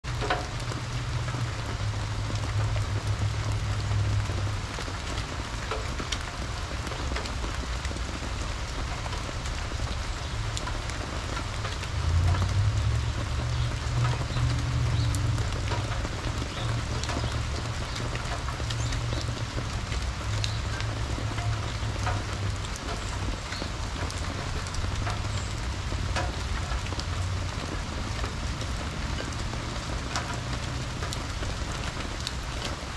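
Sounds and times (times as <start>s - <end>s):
fountain water spilling: 0.0s - 32.9s
rain falling on leaves: 0.0s - 32.9s
water drops ticking: 9.0s - 32.7s.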